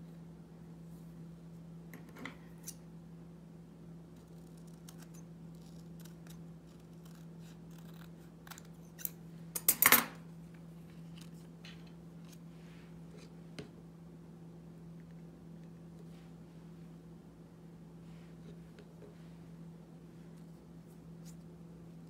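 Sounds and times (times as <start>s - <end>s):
steady low hum: 0.0s - 22.0s
scissors snipping paper: 4.2s - 9.2s.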